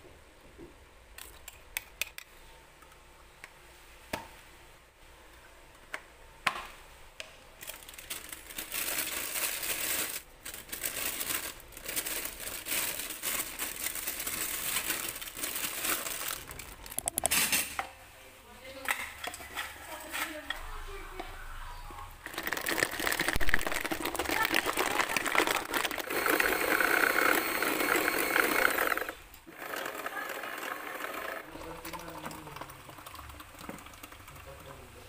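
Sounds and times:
plastic bags crinkling: 7.6 - 17.2, 22.2 - 29.1
plastic cups and lids tapping: 22.3 - 26.1.

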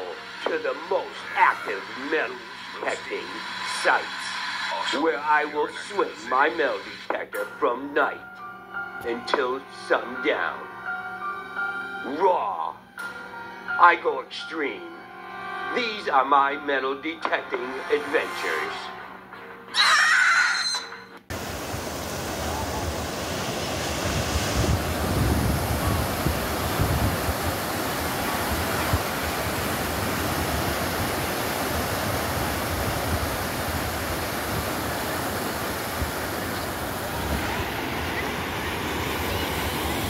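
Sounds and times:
ocean surf breaking on beach: 21.3 - 40.0
wind rumbling on microphone: 21.3 - 40.0.

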